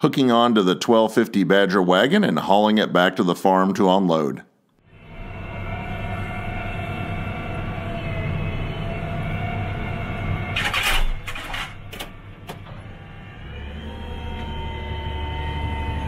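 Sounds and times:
tractor engine running: 5.0 - 16.0
clunks and clicks: 10.1 - 13.2.

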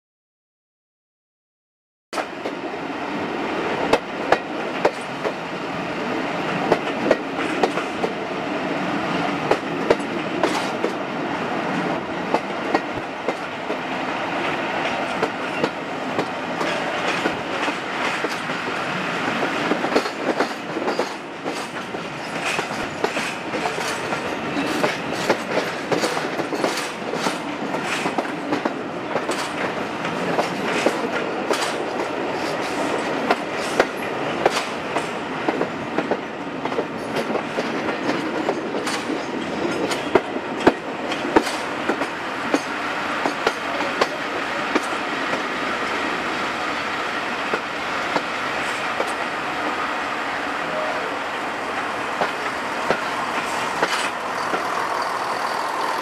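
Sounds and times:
train wheels rumbling on rail: 2.2 - 56.0
wheels clacking over rail joints: 9.4 - 11.0, 14.7 - 45.5, 51.6 - 56.0.

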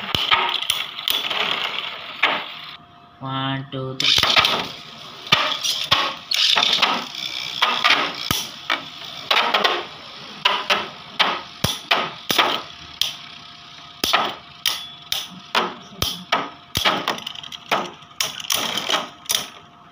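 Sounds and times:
spinning tops clacking: 0.0 - 2.8, 4.0 - 13.3.

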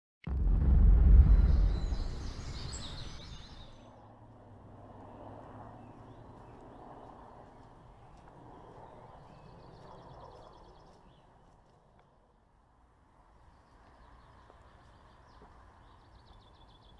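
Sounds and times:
deep rumbling whoosh: 0.2 - 3.8
birds chirping: 0.4 - 3.9.

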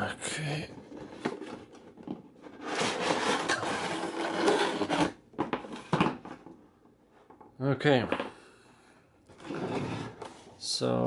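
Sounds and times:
cardboard scraping and rubbing: 2.4 - 5.2, 9.4 - 10.5.

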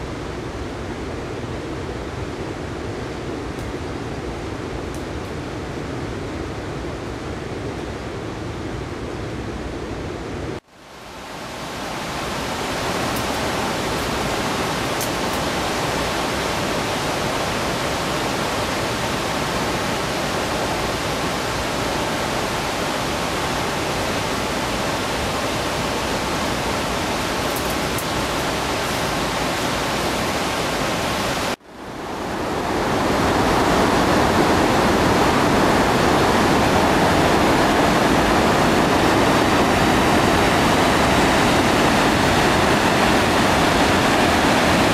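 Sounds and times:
floodwater rushing: 10.8 - 44.9.

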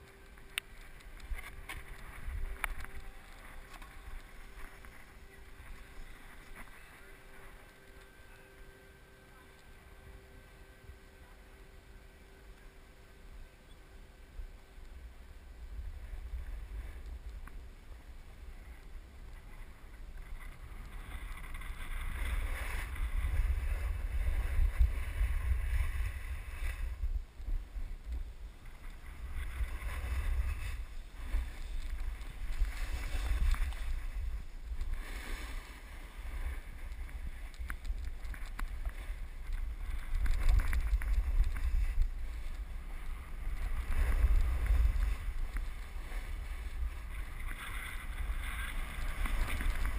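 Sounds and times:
wind buffeting microphone: 15.2 - 49.9
snowboard edge scraping snow: 20.4 - 27.0, 28.6 - 49.9.

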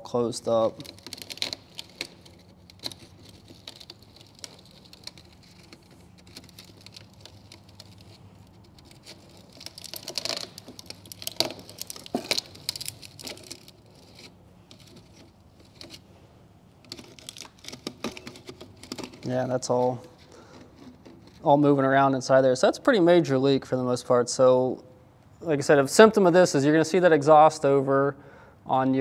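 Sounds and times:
metal wire clicks and scrapes: 0.5 - 16.0, 16.8 - 21.5.

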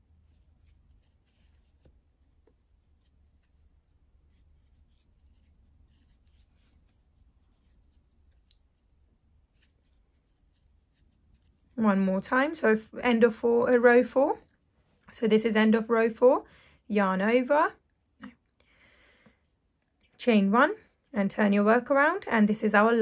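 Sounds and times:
crochet hook scratching yarn: 0.0 - 16.3.

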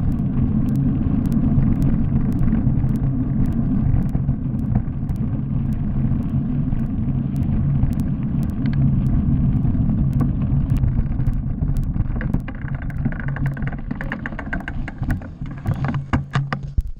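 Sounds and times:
bike tyres rumbling over gravel: 0.0 - 16.9
sharp rattling clicks: 0.0 - 16.9.

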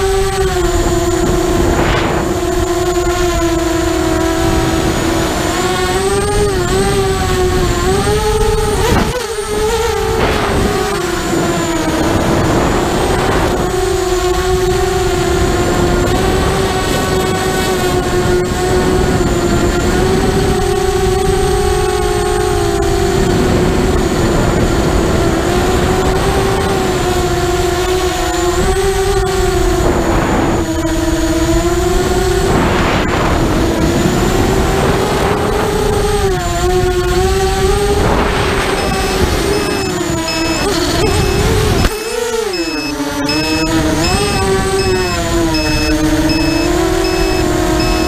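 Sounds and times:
quadcopter motors whining: 0.0 - 48.0.

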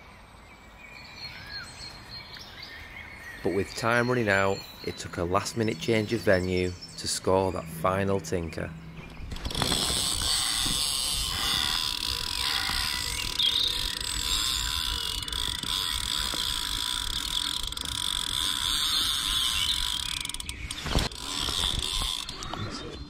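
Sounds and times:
fishing reel ratcheting click: 9.4 - 22.6.

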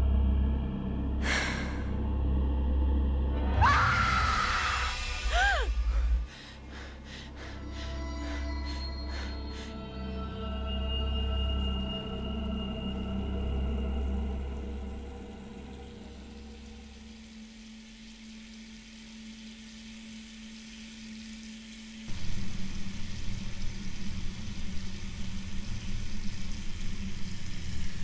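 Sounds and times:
low hum with hiss: 13.5 - 28.0
crackling sizzling noise: 15.6 - 28.0.

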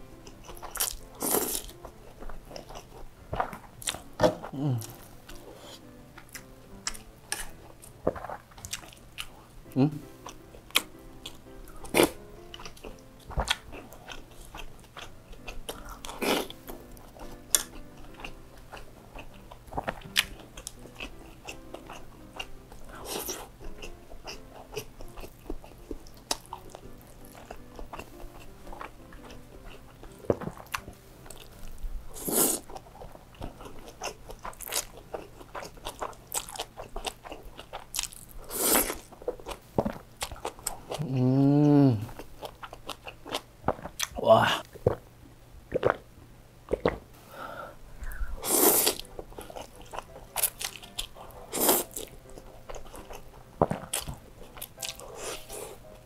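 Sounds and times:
soft background music: 0.0 - 43.7, 47.0 - 56.0
wet chewing and lip smacks: 6.2 - 9.4
slurping noodles: 32.2 - 32.7, 38.4 - 39.0, 48.4 - 49.1, 51.5 - 52.0.

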